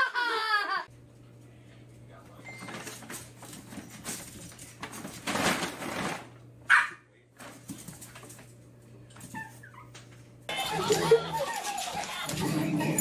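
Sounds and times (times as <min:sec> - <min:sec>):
dog scuffling: 0:02.7 - 0:06.3, 0:10.5 - 0:13.0
small dog yipping: 0:06.7 - 0:07.0, 0:09.3 - 0:10.0.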